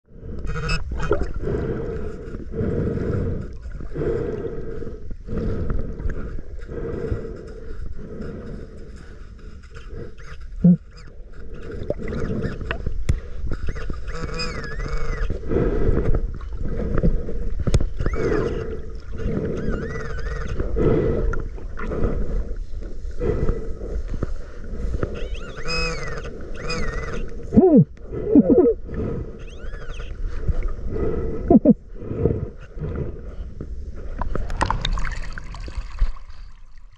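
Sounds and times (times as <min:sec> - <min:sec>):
underwater seawater and sand moving: 0:00.1 - 0:36.9
underwater gurgles: 0:00.3 - 0:01.8, 0:34.0 - 0:36.9.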